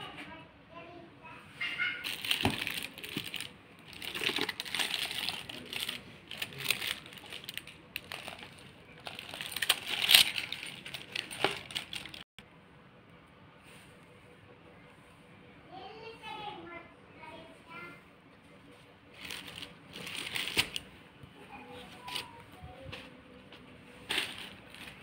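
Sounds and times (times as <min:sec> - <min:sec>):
straw basket and tinsel rustling: 0:02.0 - 0:12.2, 0:19.1 - 0:20.8, 0:24.0 - 0:25.0.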